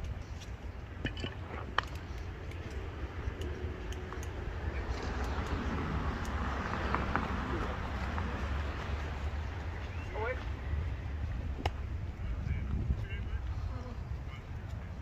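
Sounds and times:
light clicks and ticks: 0:01.8 - 0:07.3.

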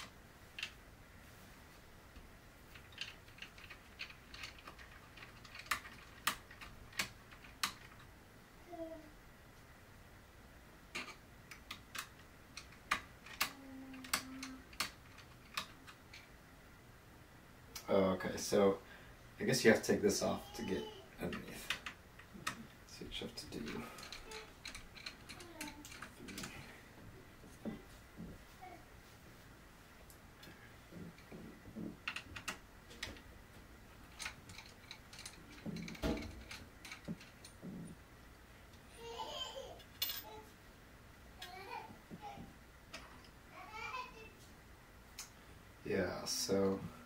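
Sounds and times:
screwdriver and metal parts clicking: 0:23.5 - 0:26.5, 0:34.0 - 0:37.7.

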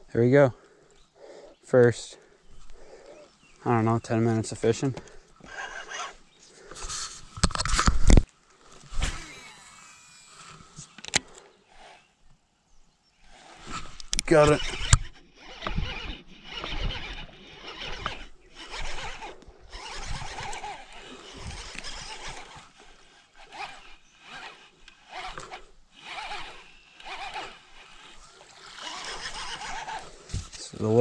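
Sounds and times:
fishing reel whirring: 0:05.4 - 0:07.2, 0:08.8 - 0:10.9, 0:13.3 - 0:30.2.

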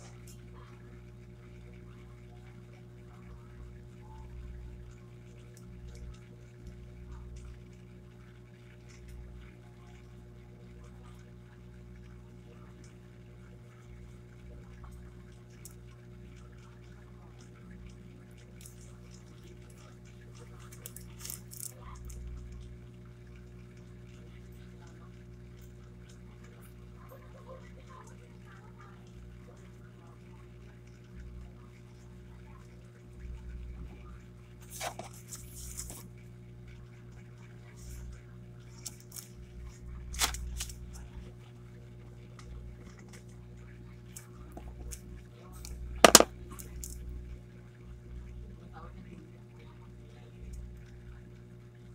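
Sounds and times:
low electrical hum: 0:00.0 - 0:51.9
paper rustling: 0:34.6 - 0:36.0.

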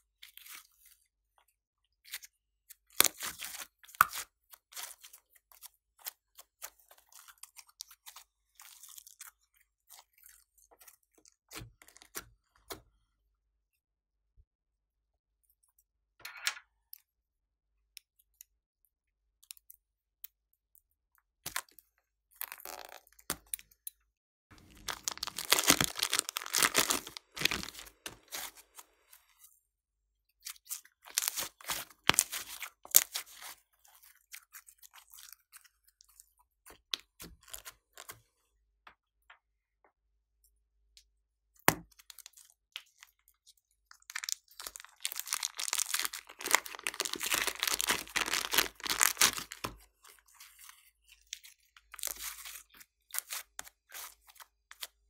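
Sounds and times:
plastic bag crinkling: 0:24.6 - 0:29.0, 0:31.1 - 0:32.6, 0:44.1 - 0:49.8.

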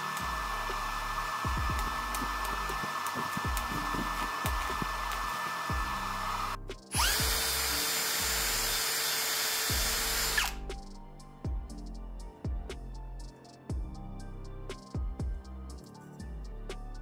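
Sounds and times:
background music with a beat: 0:00.0 - 0:08.6, 0:09.7 - 0:17.0
drill with wire brush on steel: 0:00.0 - 0:10.6.

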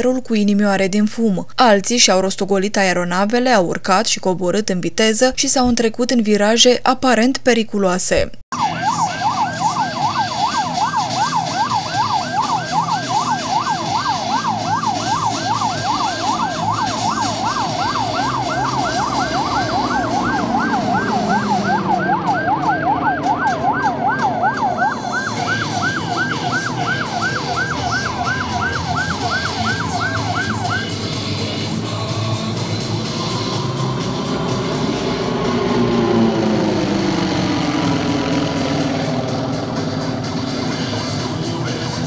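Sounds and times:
siren yelping: 0:08.5 - 0:42.0
aircraft engine rumble: 0:30.6 - 0:42.0.

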